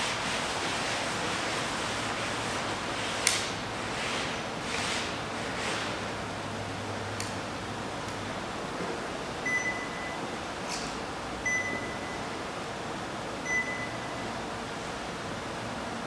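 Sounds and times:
short electronic beeps: 0:09.5 - 0:10.2, 0:11.4 - 0:12.4, 0:13.4 - 0:14.3.

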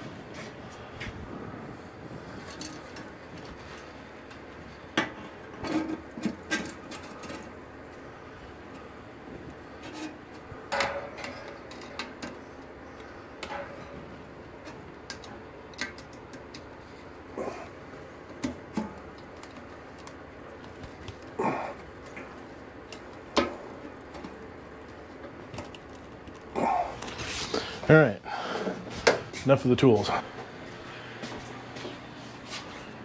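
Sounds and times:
plastic fan blade clicks and knocks: 0:10.7 - 0:13.9, 0:14.6 - 0:16.7.

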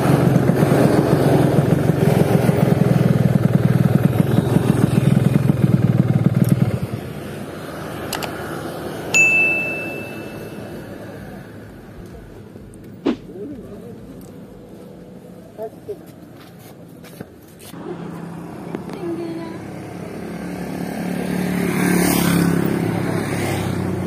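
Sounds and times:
two-stroke motorcycle engine running: 0:00.0 - 0:07.2
bell-like ding: 0:09.2 - 0:11.0.

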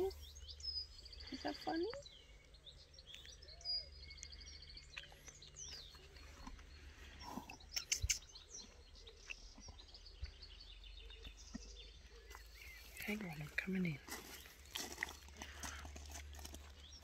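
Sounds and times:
birds chirping and singing: 0:00.0 - 0:17.0.

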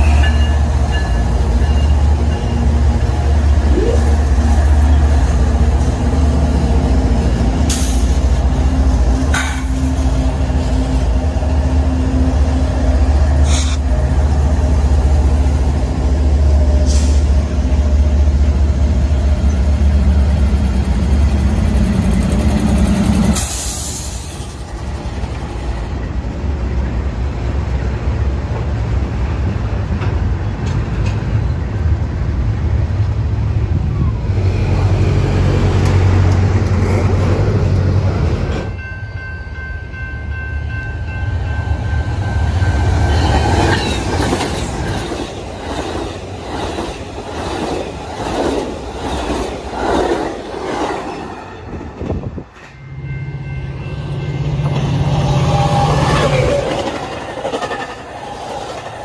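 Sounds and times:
diesel locomotive engines droning: 0:00.0 - 0:59.0
wheels rolling on rails: 0:55.8 - 0:59.0.

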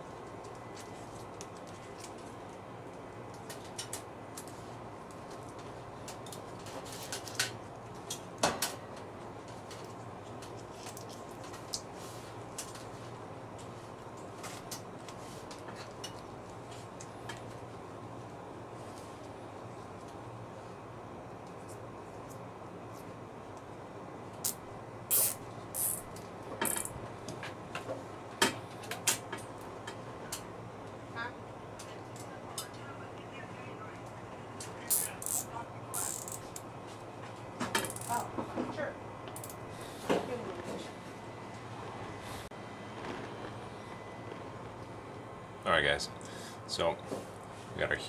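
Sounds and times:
steady low hum: 0:00.0 - 0:48.0
light clicks and rustles of wiring: 0:00.4 - 0:17.7
steady background hiss: 0:10.7 - 0:48.0
cable ties zipping tight: 0:24.4 - 0:26.0.

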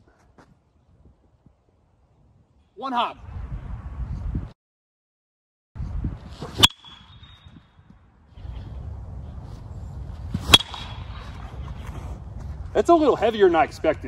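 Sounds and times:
baseball bat hitting ball: 0:10.4 - 0:11.3.

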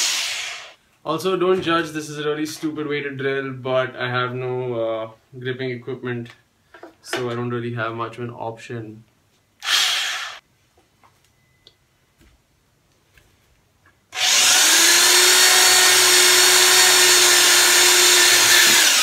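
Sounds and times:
electric drill running: 0:00.0 - 0:00.8, 0:09.6 - 0:10.4, 0:14.2 - 0:19.0.

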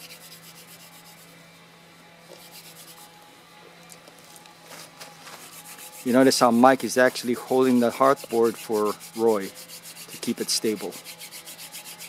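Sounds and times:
wooden spindle rubbing on wood: 0:00.0 - 0:01.3, 0:05.4 - 0:06.9, 0:07.6 - 0:12.0.

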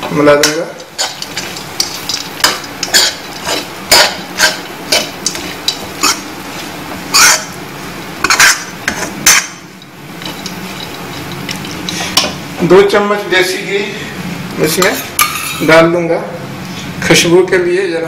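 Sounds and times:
spoon scraping metal pan: 0:00.4 - 0:07.6, 0:08.2 - 0:12.4.

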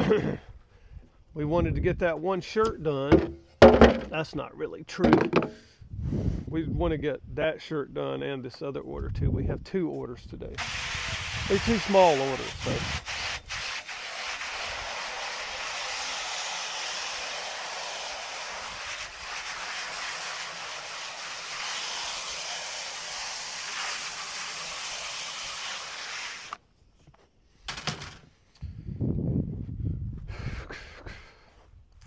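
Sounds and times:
water spray nozzle hissing: 0:10.6 - 0:26.6.

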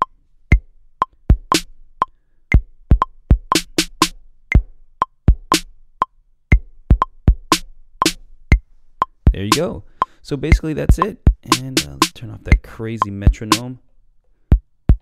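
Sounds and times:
metronome clicking: 0:00.0 - 0:13.7
deep kick drum thuds: 0:02.9 - 0:03.6, 0:05.3 - 0:05.6, 0:10.5 - 0:11.4, 0:14.5 - 0:15.0
snare hits: 0:03.5 - 0:04.1.

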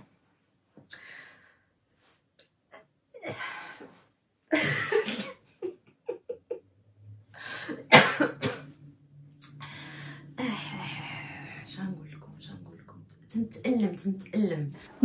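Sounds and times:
person coughing: 0:04.5 - 0:05.4, 0:07.7 - 0:08.6.

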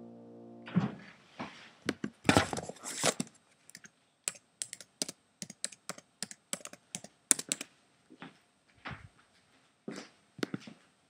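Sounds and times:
laptop keyboard clicks: 0:03.0 - 0:07.6.

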